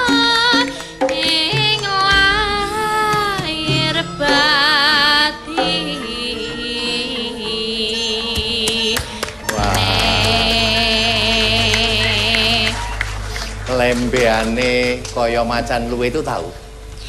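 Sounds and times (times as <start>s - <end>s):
woman singing with vibrato: 0.0s - 13.2s
instrumental accompaniment: 0.0s - 17.0s.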